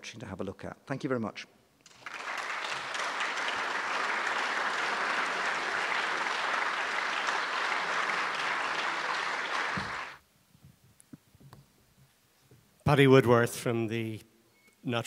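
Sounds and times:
audience applauding: 1.8s - 10.2s.

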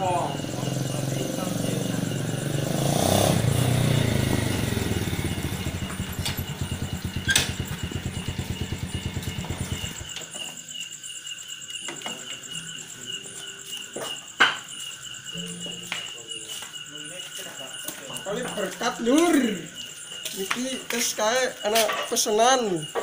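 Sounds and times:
motorcycle engine idling: 0.0s - 10.6s.

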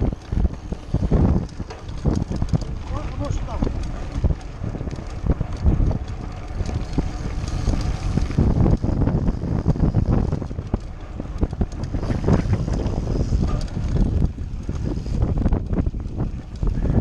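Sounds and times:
bike knocks and rattles: 0.0s - 17.0s
wind buffeting microphone: 0.0s - 17.0s.

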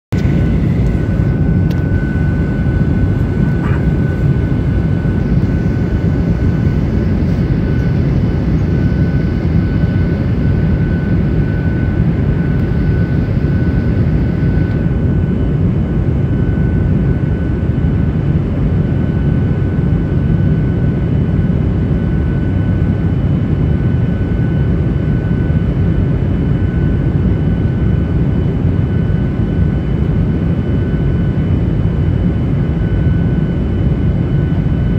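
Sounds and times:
deep rumble of airflow and engines: 0.1s - 34.9s
faint high whine: 0.2s - 14.9s.

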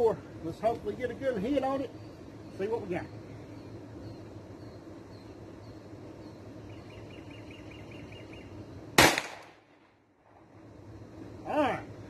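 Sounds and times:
pistol shot crack: 9.0s - 9.7s.

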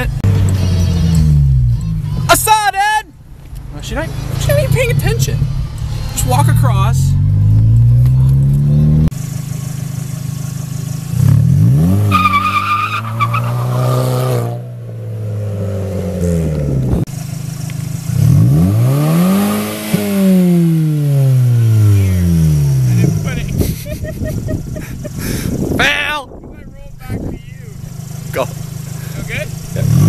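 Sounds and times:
car engine revving: 0.0s - 30.0s
tyre squeal: 12.0s - 14.4s.

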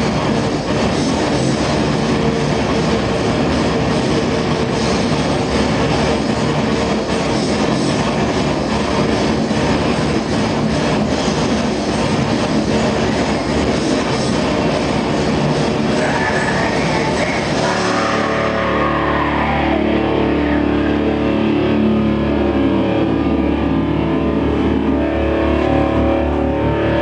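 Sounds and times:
distorted electric guitar notes: 0.0s - 27.0s
industrial metal band playing live: 0.0s - 27.0s
low drone: 0.0s - 27.0s.

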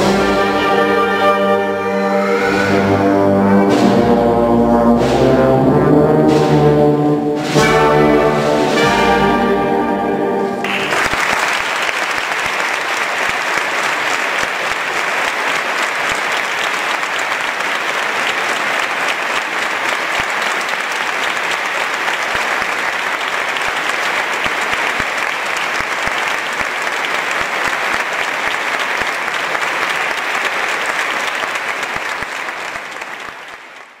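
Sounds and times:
brass band chord: 0.0s - 11.0s
audience applauding: 10.6s - 34.0s.

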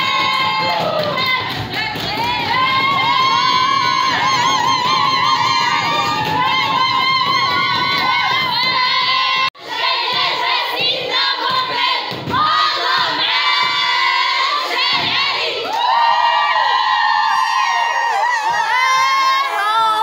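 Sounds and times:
women cheering and shouting: 0.0s - 9.5s, 15.6s - 20.0s.

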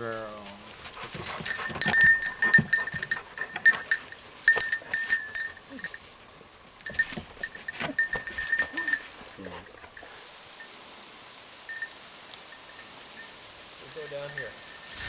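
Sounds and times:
dog bell jingling: 0.9s - 6.1s, 6.8s - 10.2s, 11.7s - 15.0s.

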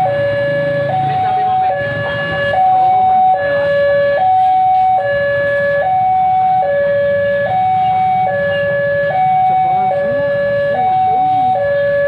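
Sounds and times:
level crossing alarm: 0.0s - 12.0s
motorbike engines idling: 0.0s - 12.0s.

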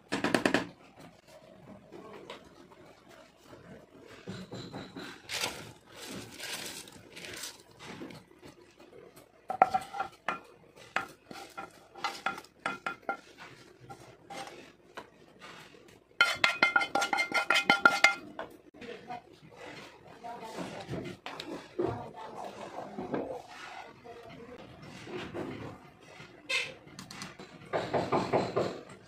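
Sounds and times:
spatula scraping a ringing pan: 9.5s - 14.8s, 15.4s - 18.3s.

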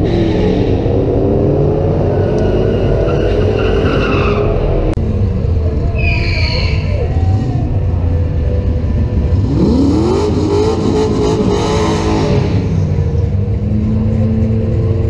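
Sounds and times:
racing car engines revving: 0.0s - 15.0s
high squeal: 1.9s - 4.9s, 5.8s - 7.7s.

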